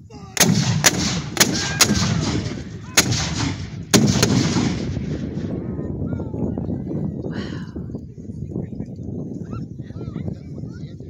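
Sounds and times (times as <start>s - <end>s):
cannons firing booms: 0.4s - 5.7s.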